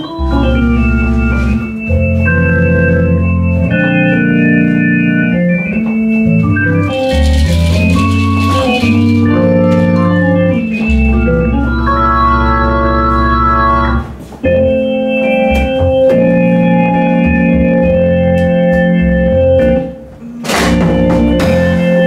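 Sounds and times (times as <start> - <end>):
bass line: 0.0 - 22.0
guitar: 0.0 - 22.0
organ chords: 0.0 - 22.0
saxophone: 6.0 - 22.0
drums: 20.4 - 22.0.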